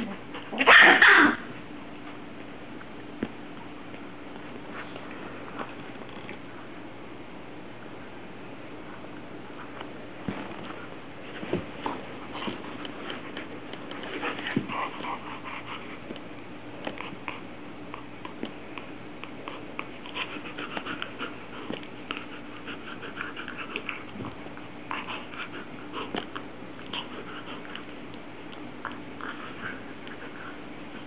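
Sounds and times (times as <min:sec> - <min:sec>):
puppy play noises: 0:08.8 - 0:31.0.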